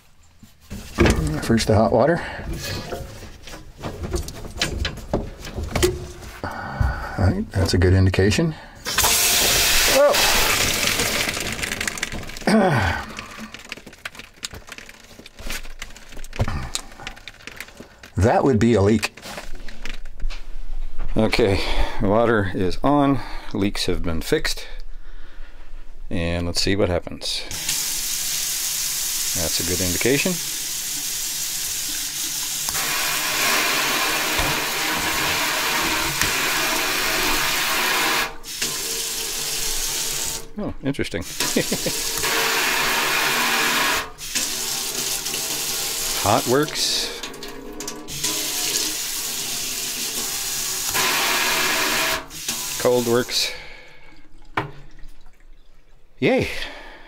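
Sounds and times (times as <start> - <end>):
faucet water into steel sink: 8.9 - 12.4, 27.5 - 40.5, 41.2 - 56.1
falling vocal groan: 12.4 - 13.5.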